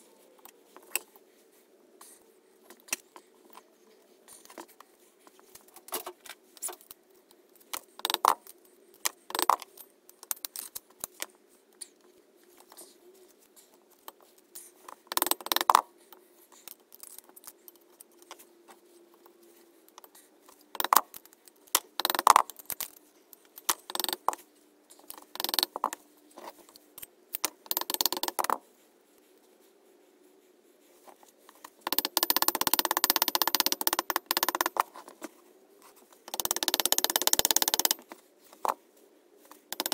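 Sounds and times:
metal parts clinking and knocking: 0:20.0 - 0:24.4, 0:25.0 - 0:26.0, 0:31.6 - 0:34.9, 0:36.3 - 0:38.8, 0:39.6 - 0:39.9.

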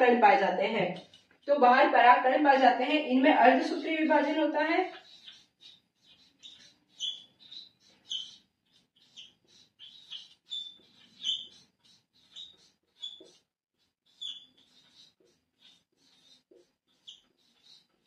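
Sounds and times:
marker squeaking on whiteboard: 0:00.0 - 0:18.0.

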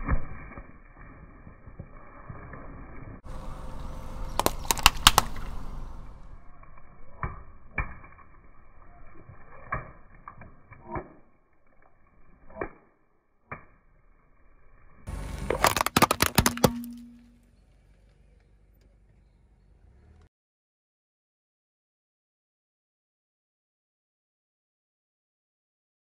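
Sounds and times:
car tyre rolling on wet pavement: 0:03.2 - 0:06.5
hard plastic cracking: 0:04.3 - 0:05.6, 0:15.3 - 0:17.4
water balloons bursting: 0:04.3 - 0:06.4, 0:15.1 - 0:17.4.

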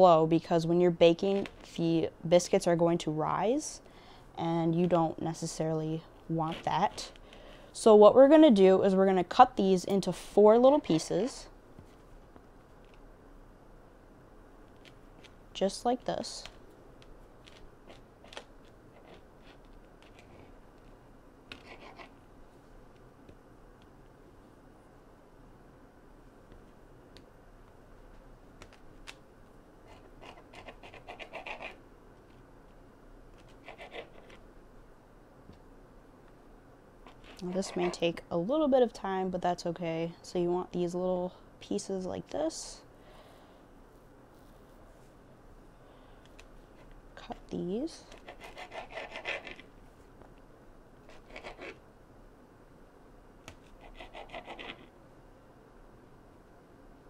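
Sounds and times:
knife sawing through dough: 0:48.2 - 0:49.6, 0:53.8 - 0:54.9.

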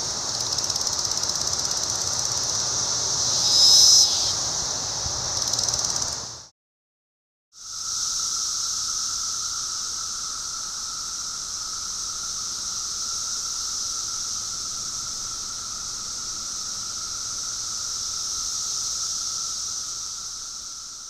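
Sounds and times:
cicadas chorus: 0:00.0 - 0:06.5, 0:07.6 - 0:21.0.

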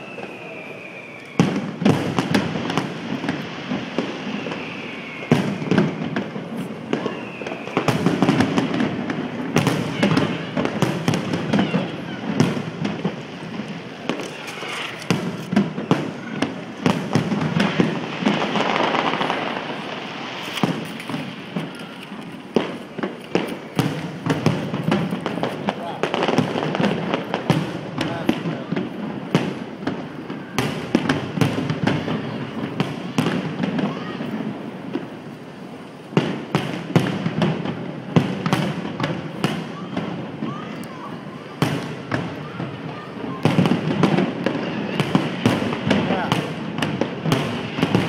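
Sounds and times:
falling firework whistles: 0:00.0 - 0:35.3
firework bangs: 0:00.0 - 0:48.0
firework crackling: 0:00.0 - 0:48.0.

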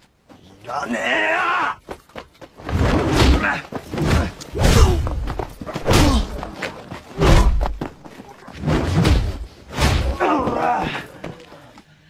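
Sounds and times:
fighters yelling and grunting: 0:00.6 - 0:01.9, 0:03.1 - 0:08.6, 0:09.9 - 0:11.7
punches and kicks thudding: 0:02.6 - 0:06.6, 0:07.2 - 0:07.9, 0:08.6 - 0:11.0.

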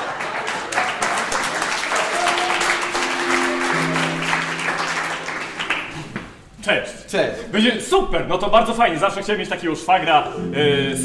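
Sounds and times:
audience applauding: 0:00.0 - 0:06.5
instrumental music low held notes: 0:02.6 - 0:06.4, 0:10.1 - 0:11.0.

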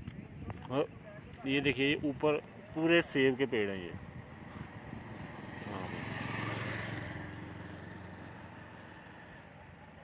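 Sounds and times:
road and wind noise: 0:00.0 - 0:10.0.

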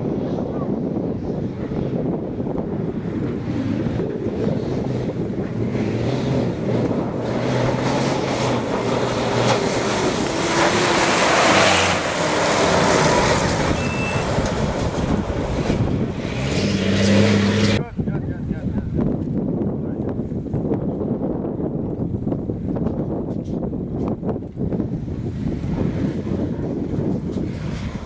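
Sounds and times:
truck engine running hard: 0:00.0 - 0:17.8
tyres on gravel: 0:07.8 - 0:15.7.

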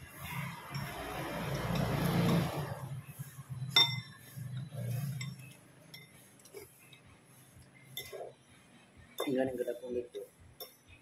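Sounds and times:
spoon and fork clinking on bowls: 0:00.3 - 0:02.8, 0:03.6 - 0:07.1, 0:07.9 - 0:08.4, 0:09.1 - 0:11.0.

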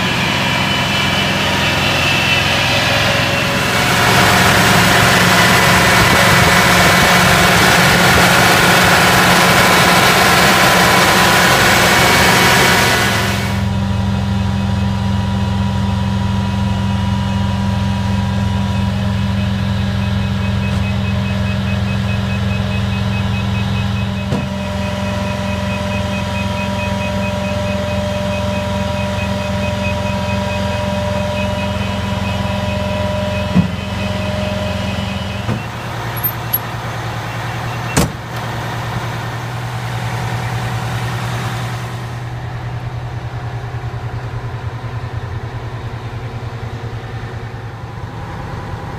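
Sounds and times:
diesel engine idling: 0:00.0 - 0:48.9
rapid high beeping: 0:18.6 - 0:38.0.

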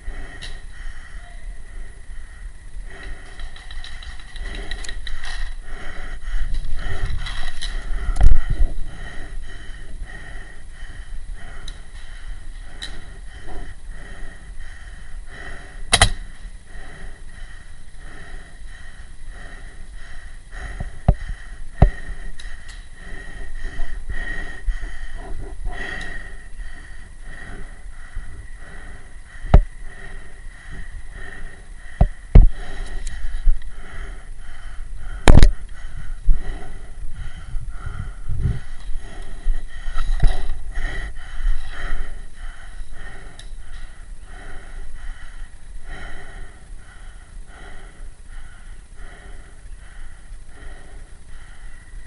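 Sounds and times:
heavy breathing in mask: 0:00.0 - 0:52.0
paintball gun cracks: 0:15.9 - 0:16.3.

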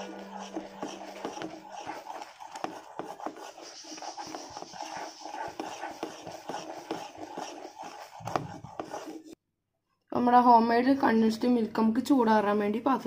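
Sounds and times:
spatula scraping a pan: 0:00.0 - 0:09.4.

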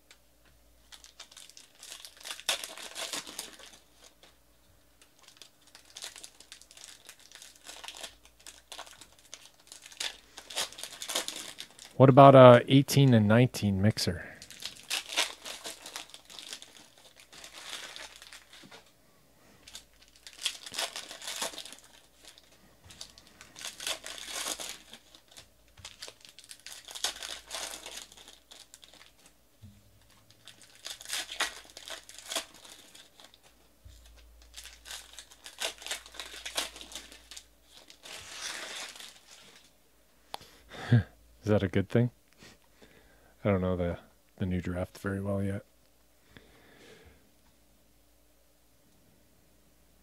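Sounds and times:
foil wrappers crinkling and tearing: 0:00.8 - 0:12.0, 0:14.3 - 0:18.9, 0:19.6 - 0:29.4, 0:30.0 - 0:39.8.

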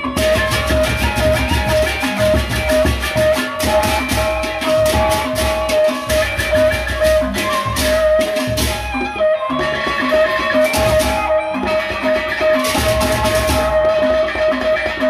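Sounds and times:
hand cymbals clashing: 0:00.0 - 0:09.0, 0:09.7 - 0:15.0
barrel drums beaten: 0:00.0 - 0:15.0
gamelan melody: 0:00.0 - 0:15.0.

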